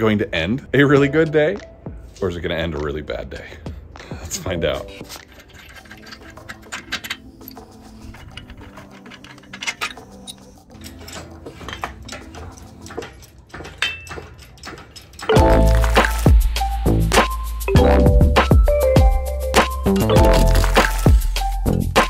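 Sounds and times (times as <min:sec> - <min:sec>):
music: 0:00.0 - 0:22.0
tools clicking and tapping: 0:04.9 - 0:17.3.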